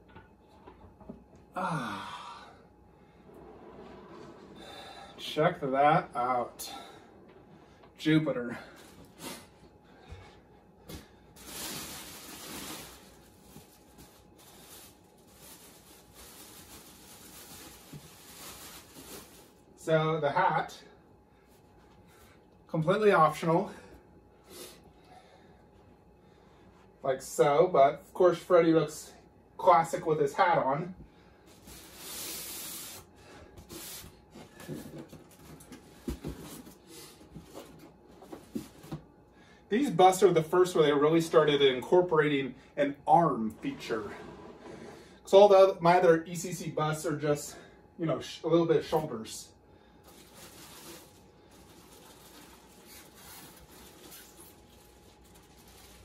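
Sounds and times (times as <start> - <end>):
rustling handling noise: 10.8 - 19.7, 31.5 - 39.1, 50.0 - 56.0.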